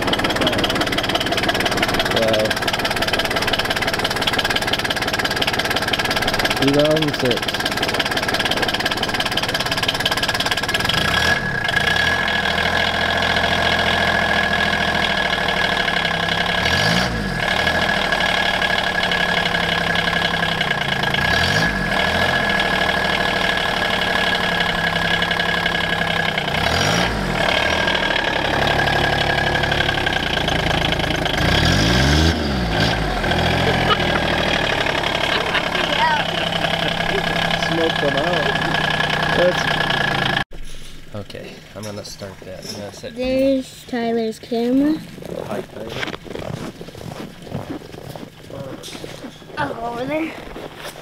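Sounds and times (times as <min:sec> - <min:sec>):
utility vehicle engine revving: 0:00.0 - 0:40.5.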